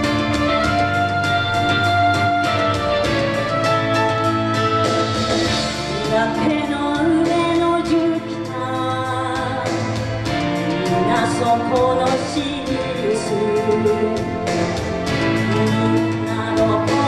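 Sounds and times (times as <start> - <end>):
instrumental accompaniment: 0.0 - 17.0
woman singing pop song: 5.9 - 17.0.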